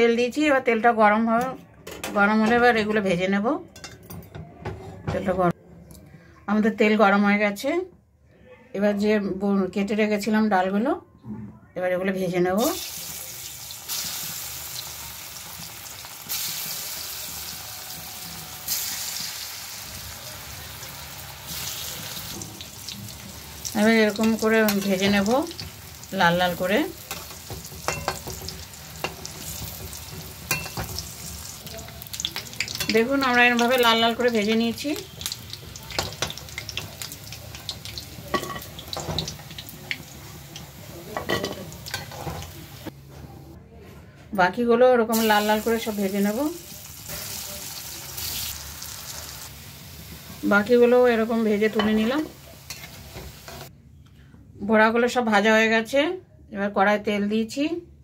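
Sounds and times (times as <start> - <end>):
food deep-frying in hot oil: 12.6 - 42.9, 45.1 - 53.7.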